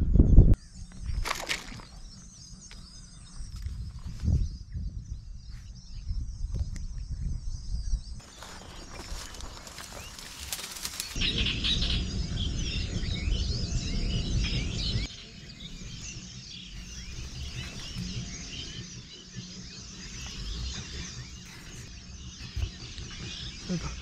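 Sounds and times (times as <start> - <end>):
small birds chirping: 0.3 - 24.0
loud low rumble: 11.2 - 15.1.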